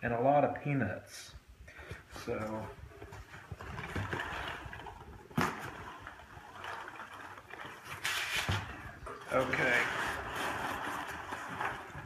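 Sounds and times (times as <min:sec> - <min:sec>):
foam packing peanuts rustling: 0:01.9 - 0:12.0.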